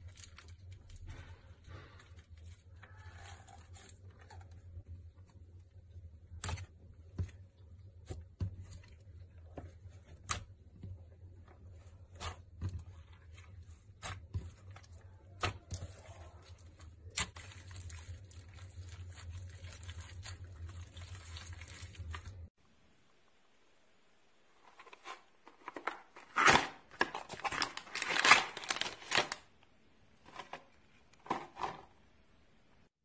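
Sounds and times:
slime squishing: 0:00.0 - 0:22.5.

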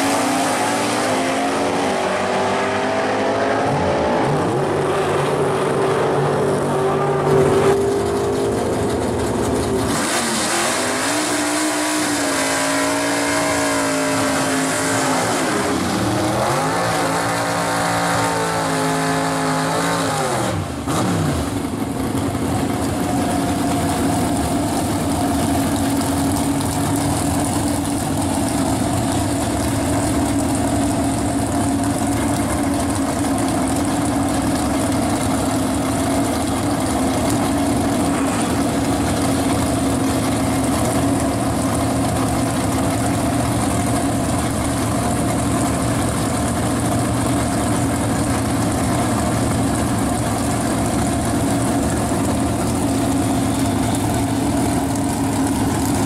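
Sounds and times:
drag car engine revving: 0:00.0 - 0:56.0.

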